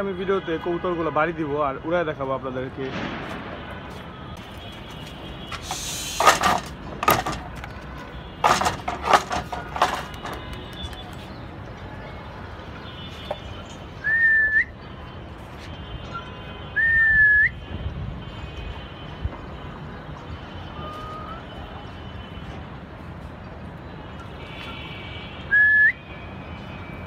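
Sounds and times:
person whistling: 14.0 - 14.7, 25.5 - 26.0.

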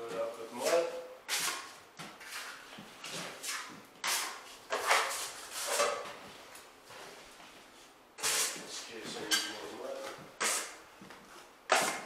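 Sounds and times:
taping knife scraping drywall: 0.6 - 6.0, 8.2 - 12.0.

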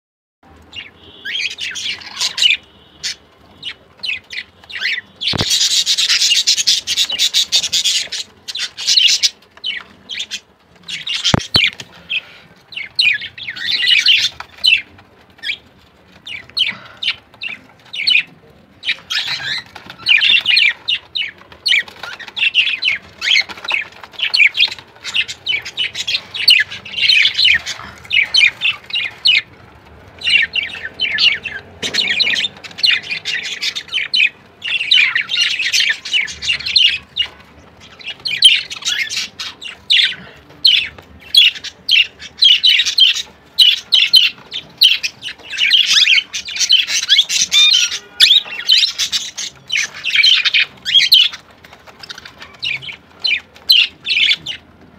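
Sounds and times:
budgerigars chattering: 0.7 - 15.6, 16.2 - 29.5, 30.2 - 54.6.

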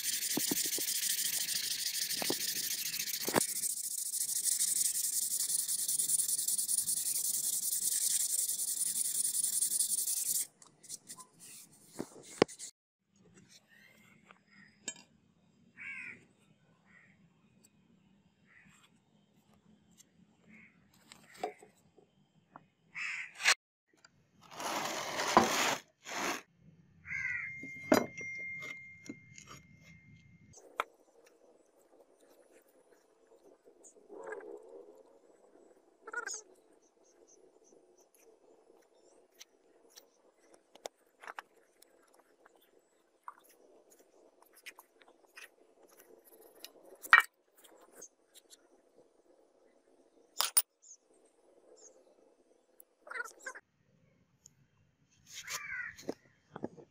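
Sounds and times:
scraping on concrete floor: 24.4 - 26.5
sand rustling by hand: 24.5 - 26.5.

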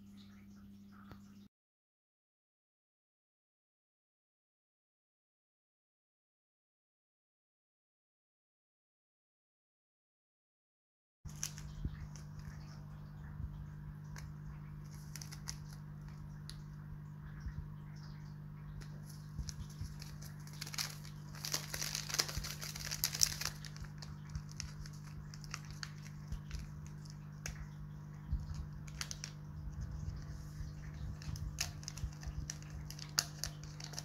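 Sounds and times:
sachet tearing open: 11.3 - 12.6, 14.2 - 16.6, 18.8 - 27.7, 28.4 - 34.0
sachets crinkling: 11.3 - 12.8, 14.1 - 16.6, 18.8 - 34.0
steady low hum: 11.3 - 34.0.

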